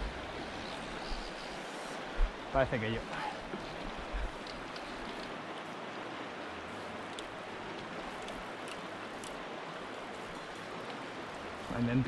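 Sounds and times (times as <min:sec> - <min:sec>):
river rushing over stones: 0:00.0 - 0:12.0
faint clicks: 0:04.2 - 0:05.7, 0:07.0 - 0:11.0.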